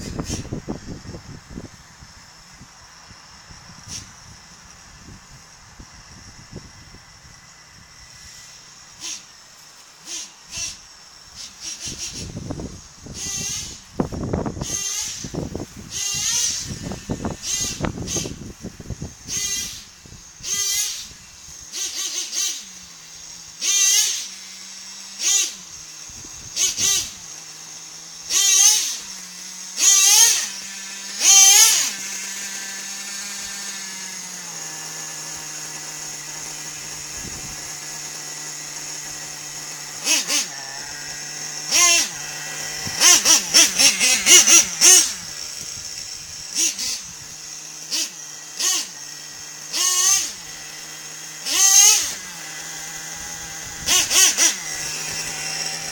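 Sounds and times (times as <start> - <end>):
rc truck engine idling and revving: 0.0 - 55.9.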